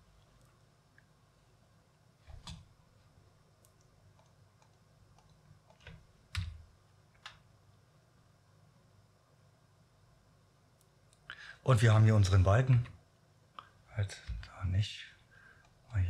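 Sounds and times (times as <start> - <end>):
keystrokes on computer keyboard: 3.6 - 6.6.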